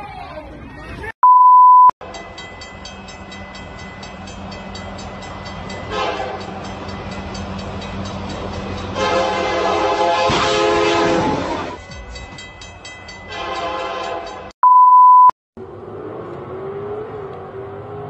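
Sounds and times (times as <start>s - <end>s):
train horn blasts: 5.9s - 6.6s, 8.9s - 11.8s, 13.3s - 14.5s.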